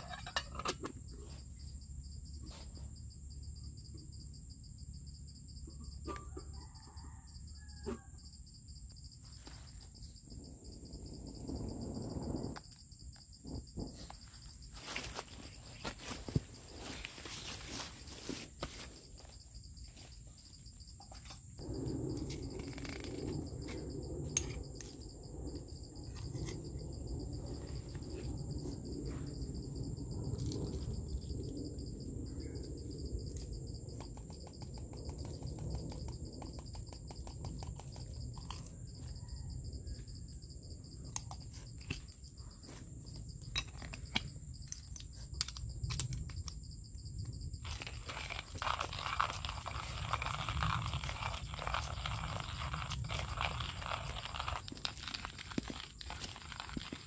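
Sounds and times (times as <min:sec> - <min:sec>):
insects buzzing: 0:06.6 - 0:57.0
hand coffee grinder grinding: 0:47.6 - 0:57.0.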